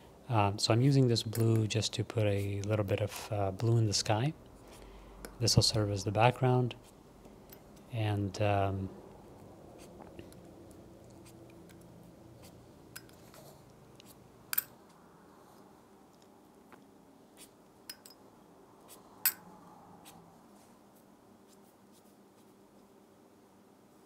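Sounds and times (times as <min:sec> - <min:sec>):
faint steady hum: 0:00.0 - 0:24.0
pen and jar clicks and taps: 0:12.9 - 0:13.4, 0:14.5 - 0:14.7, 0:17.9 - 0:18.2.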